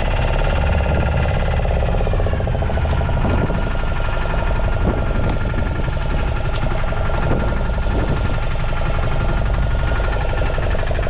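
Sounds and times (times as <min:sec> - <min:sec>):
boat engine running: 0:00.0 - 0:11.0.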